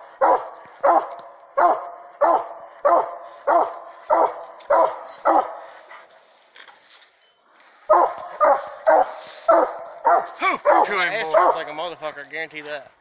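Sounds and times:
hounds barking: 0.0s - 6.2s, 7.8s - 11.9s.

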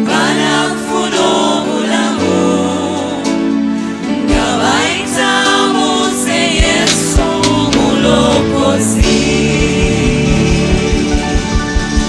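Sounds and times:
gospel singers harmonising: 0.0s - 12.0s
band accompaniment: 4.1s - 12.0s
bass drum beats: 6.5s - 12.0s.

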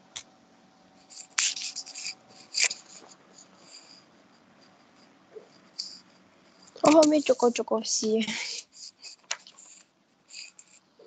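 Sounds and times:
scratchy rustles: 1.0s - 7.3s.

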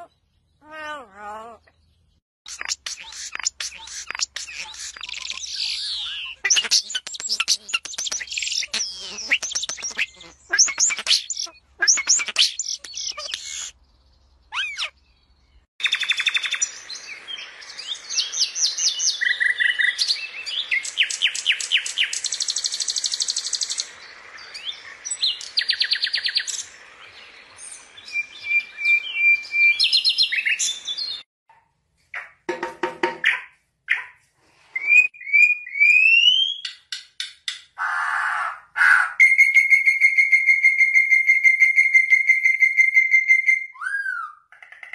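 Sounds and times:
nightingale singing trills: 0.0s - 31.2s
starling singing: 2.5s - 13.8s.

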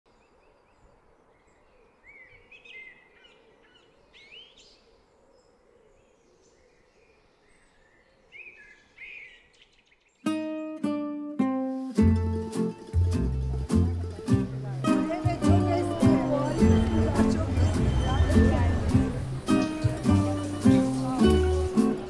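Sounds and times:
birds chirping: 0.1s - 10.8s, 12.3s - 22.0s
faint outdoor hiss: 0.1s - 22.0s
plucked guitar note: 10.3s - 22.0s.

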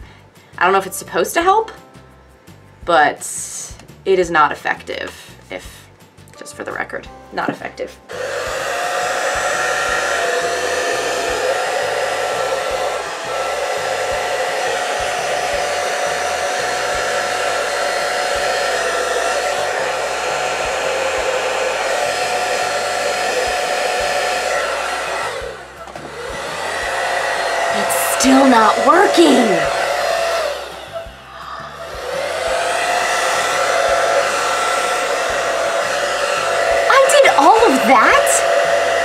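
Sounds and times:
hair dryer running: 8.1s - 39.0s.

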